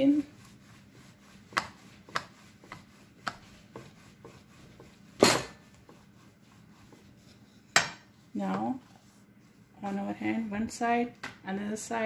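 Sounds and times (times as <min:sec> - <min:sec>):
rolling pin knocking on wooden board: 0:01.5 - 0:06.0.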